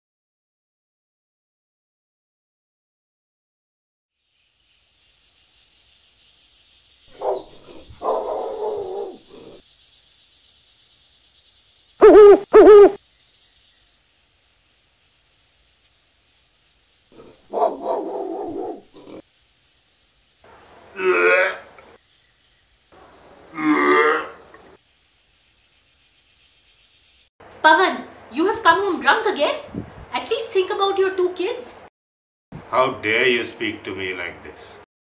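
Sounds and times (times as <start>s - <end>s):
steady high hiss: 4.1s - 31.9s, 32.6s - 34.8s
owl hooting: 7.1s - 9.6s, 12.0s - 13.0s, 17.2s - 19.2s
indistinct mid-pitched sound: 12.0s - 13.0s.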